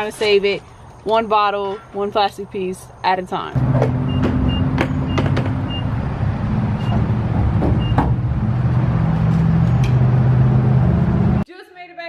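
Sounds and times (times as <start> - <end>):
fuel dispenser beeping: 3.7 - 6.0, 7.8 - 8.0.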